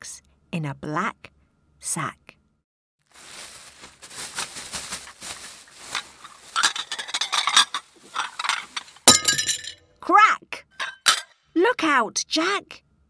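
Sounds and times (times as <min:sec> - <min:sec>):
handling noise: 0:03.2 - 0:09.8
china and glass clinking: 0:06.5 - 0:09.8, 0:10.7 - 0:11.3.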